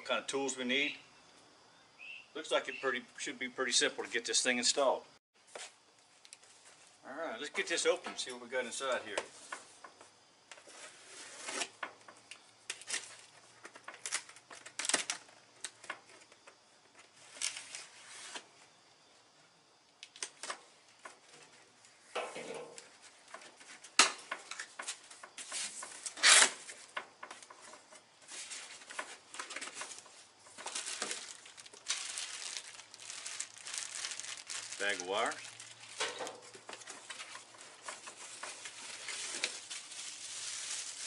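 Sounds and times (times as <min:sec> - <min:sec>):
cardboard tearing: 0:26.0 - 0:26.7
plastic packaging rustling: 0:28.3 - 0:41.0.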